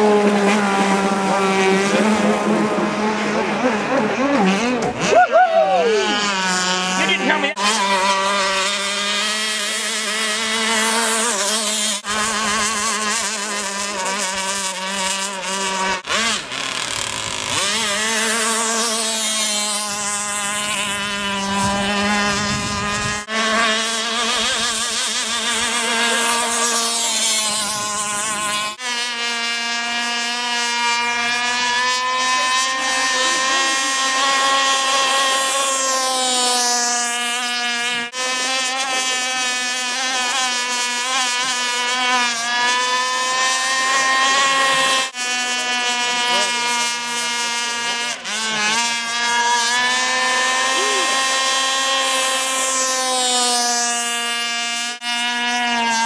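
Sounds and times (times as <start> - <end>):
rc boat motor whine: 0.0 - 56.0.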